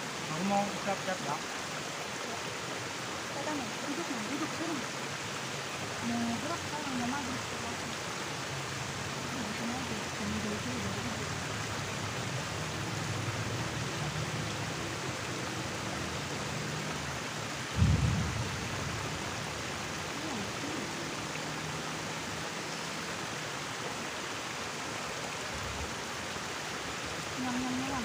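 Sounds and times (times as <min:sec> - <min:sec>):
river water flowing: 0:00.0 - 0:28.0
dull low thump: 0:17.8 - 0:19.1.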